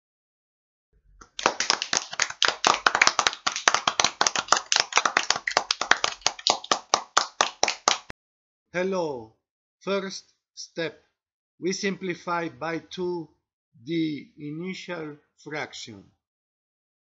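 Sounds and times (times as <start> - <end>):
hands clapping rapidly: 1.2 - 8.1.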